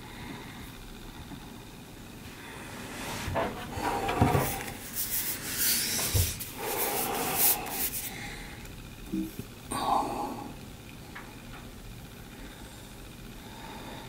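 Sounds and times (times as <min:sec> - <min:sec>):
laptop scraping on tabletop: 0:02.5 - 0:08.0.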